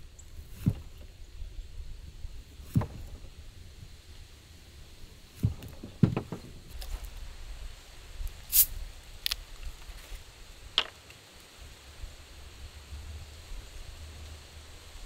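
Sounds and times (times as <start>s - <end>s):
dull knocks: 0.5s - 1.1s, 2.6s - 3.3s, 5.4s - 6.8s.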